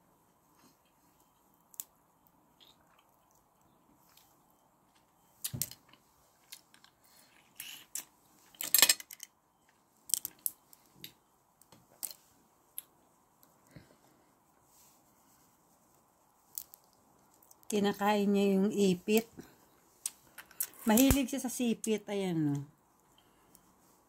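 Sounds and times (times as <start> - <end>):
crayfish shells cracking: 10.1 - 10.6, 16.5 - 17.7.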